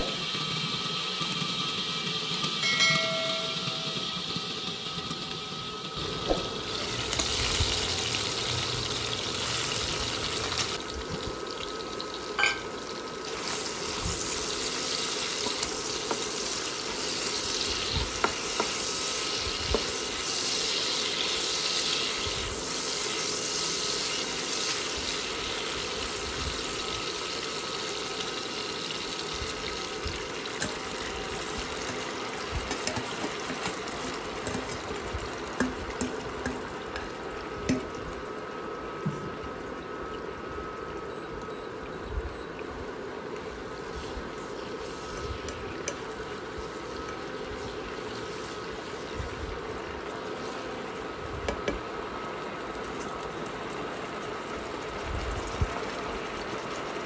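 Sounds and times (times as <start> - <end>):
food sizzling in a pan: 0.0 - 39.0, 43.5 - 55.0.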